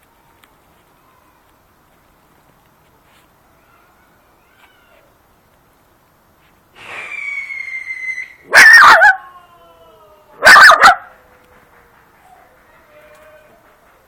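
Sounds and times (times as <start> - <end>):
puppy barking: 8.5 - 9.3, 10.4 - 11.2.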